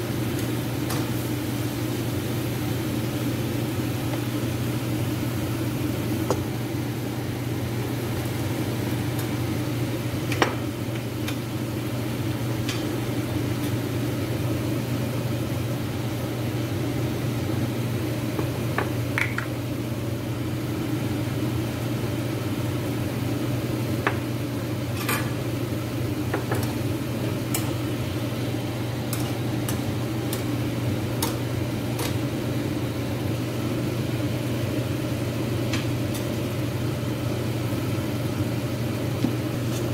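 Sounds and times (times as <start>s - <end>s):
low machine hum: 0.0s - 39.9s.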